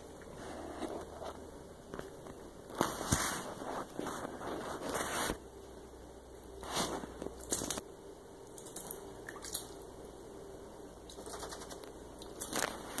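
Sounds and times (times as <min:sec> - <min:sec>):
soft water splashes: 0:08.4 - 0:10.0.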